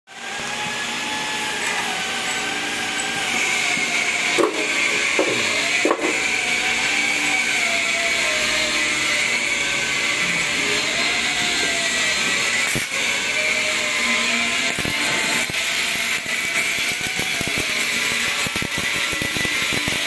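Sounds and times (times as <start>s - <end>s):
machine motor humming: 0.1s - 20.0s
sharp knocks: 4.4s - 6.2s.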